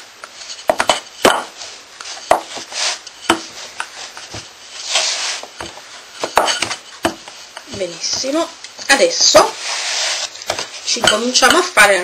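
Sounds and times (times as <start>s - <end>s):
rolling pin swishing over dough: 0.2s - 12.0s
rolling pin knocking on board: 0.7s - 1.5s, 2.3s - 2.6s, 3.3s - 4.5s, 5.6s - 8.4s.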